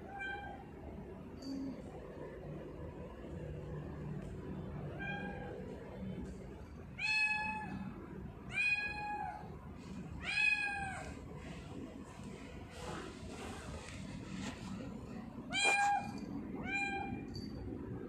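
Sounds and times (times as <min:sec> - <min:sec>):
cat meowing: 0:15.5 - 0:17.2.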